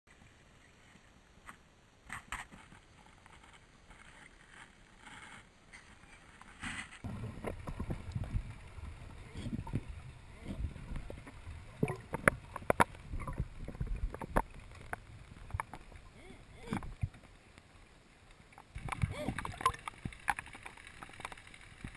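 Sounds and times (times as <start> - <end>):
underwater rumble of moving water: 6.2 - 21.9
sharp clicks and crackles: 10.8 - 17.7, 18.3 - 21.9.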